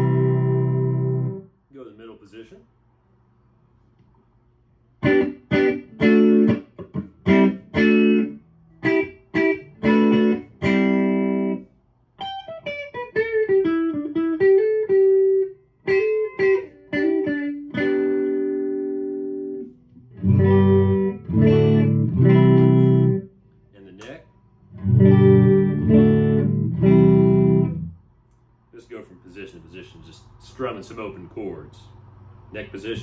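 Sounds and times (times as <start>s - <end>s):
clean electric guitar chord stabs: 0.0s - 1.4s, 5.0s - 11.6s, 12.3s - 23.3s, 24.7s - 28.0s
electric guitar single-note run: 0.0s - 1.4s, 5.0s - 11.6s, 12.3s - 23.3s, 24.7s - 28.0s.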